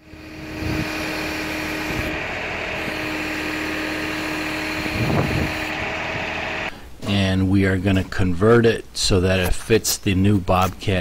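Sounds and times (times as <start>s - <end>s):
tractor engine running: 0.0s - 6.7s
steady hum: 0.0s - 7.0s.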